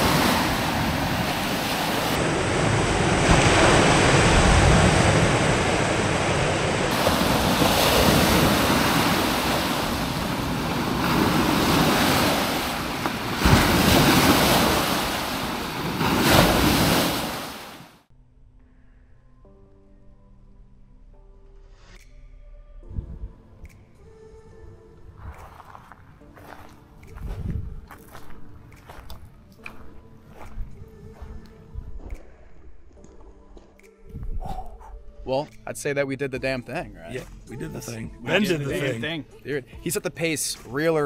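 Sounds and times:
rushing wind: 0:00.0 - 0:17.9
rushing river water: 0:00.0 - 0:18.0
wind buffeting microphone: 0:27.2 - 0:27.9.

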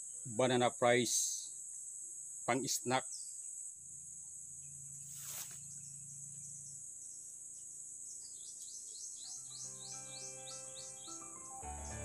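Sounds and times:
high-pitched insect buzz: 0:01.4 - 0:12.0
rustling swish: 0:05.1 - 0:05.6
music with chirping notes: 0:08.4 - 0:12.0.

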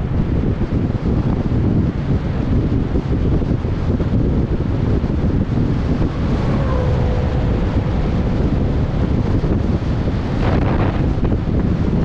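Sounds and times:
wind buffeting on microphone: 0:00.0 - 0:12.0
car passing: 0:04.7 - 0:11.9.

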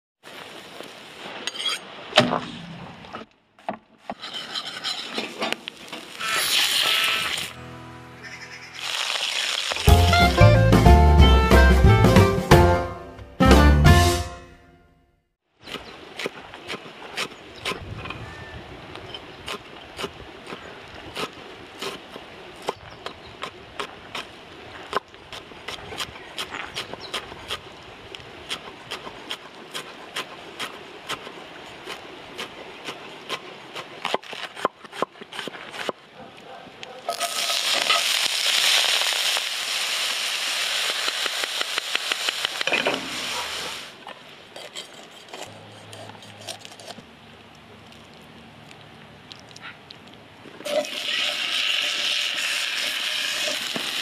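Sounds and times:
meat sizzling on a grill: 0:06.0 - 0:07.5, 0:08.6 - 0:10.0, 0:37.1 - 0:43.9, 0:50.7 - 0:54.0.

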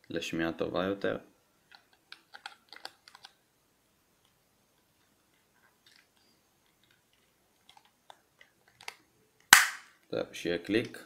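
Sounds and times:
plastic clicks and taps: 0:01.7 - 0:03.4.

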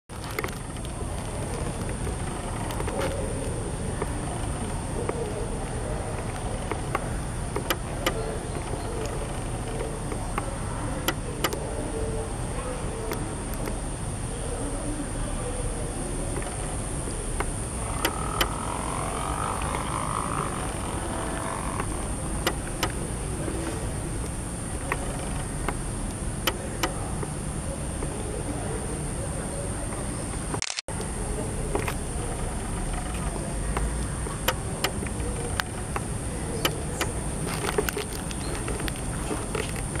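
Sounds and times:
high-pitched whine: 0:00.1 - 0:40.0
sharp clicks: 0:00.2 - 0:11.7, 0:16.3 - 0:27.4, 0:30.3 - 0:31.1, 0:31.7 - 0:40.0.

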